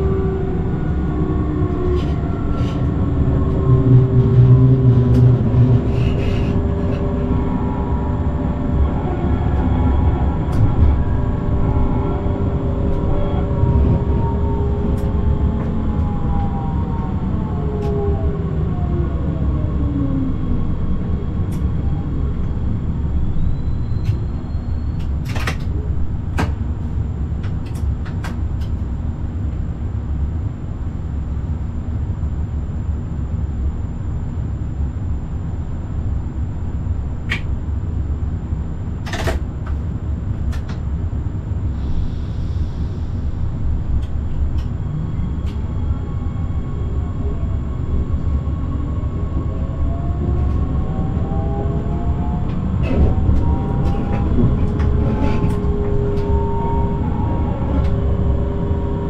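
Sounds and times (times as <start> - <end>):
train motor whine: 0.0 - 20.8, 39.0 - 59.0
train rumbling along track: 0.0 - 59.0.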